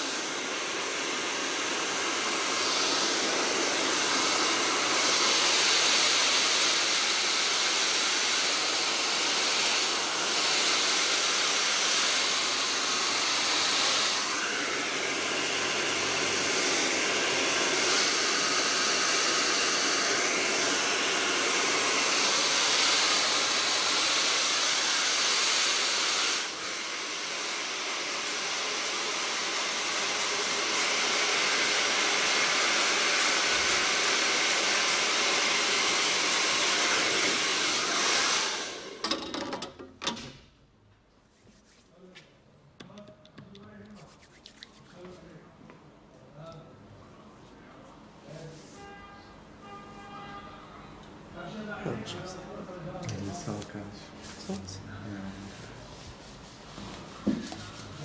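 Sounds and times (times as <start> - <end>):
hair dryer blowing: 0.0 - 39.2, 53.1 - 58.0.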